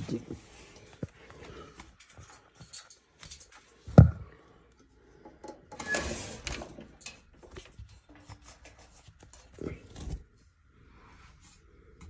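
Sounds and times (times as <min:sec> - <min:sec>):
rustling and scraping: 0:05.7 - 0:12.0.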